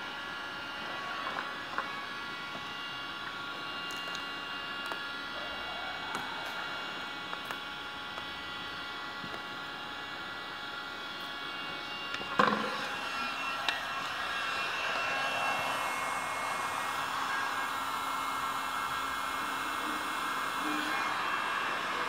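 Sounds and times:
heat gun blowing: 11.6 - 22.0.

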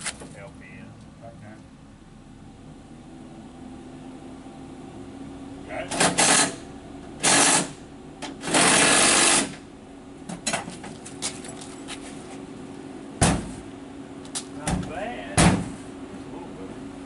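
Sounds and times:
steady low hum: 0.0 - 17.0
power tool rattling bursts: 5.9 - 6.6, 7.2 - 7.8, 8.4 - 9.6
sharp bang: 15.4 - 15.8.

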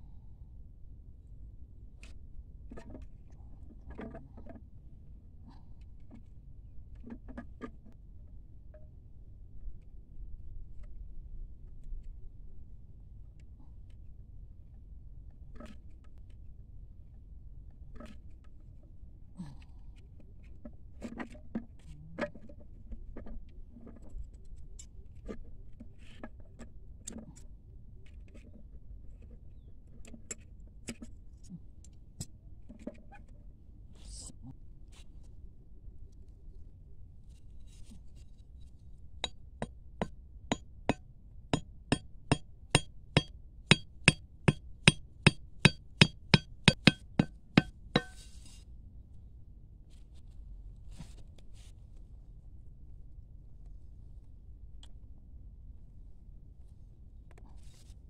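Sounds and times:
machete knocking wooden stake: 41.9 - 48.2.

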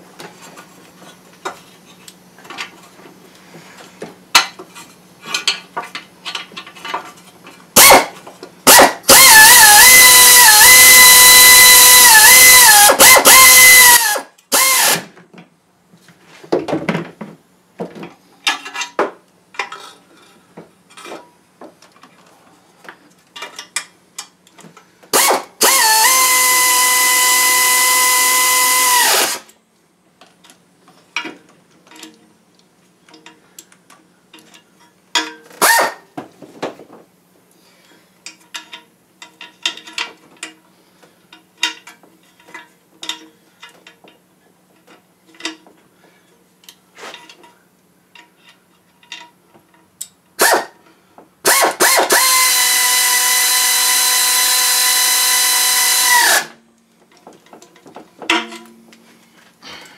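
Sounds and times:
power drill spinning: 8.7 - 15.1, 25.2 - 29.5, 35.6 - 36.0, 50.4 - 50.7, 51.4 - 56.6
tools and bolts clinking: 38.2 - 40.7, 41.3 - 45.8, 46.6 - 50.2, 57.1 - 59.0.

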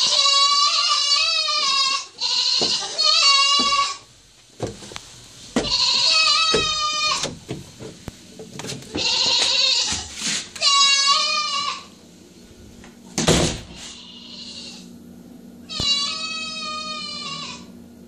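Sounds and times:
pet animal wailing: 0.0 - 4.0, 5.7 - 7.3, 9.0 - 11.9, 13.8 - 14.9, 15.7 - 17.7.

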